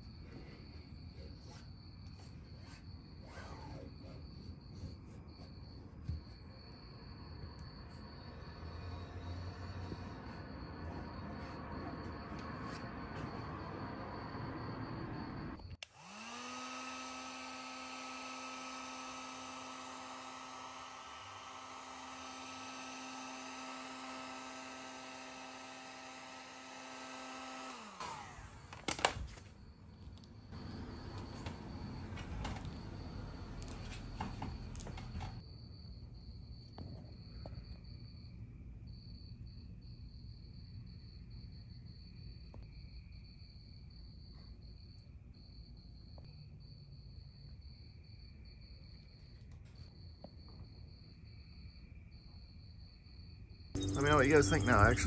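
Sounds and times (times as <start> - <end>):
heat gun fan whine: 7.8 - 35.4, 53.8 - 55.0.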